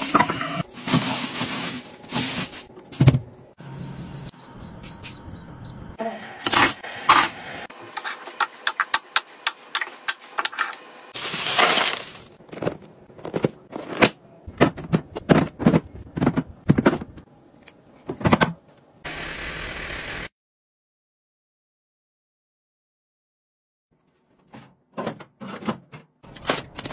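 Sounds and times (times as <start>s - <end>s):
plastic containers clattering: 11.2s - 17.2s.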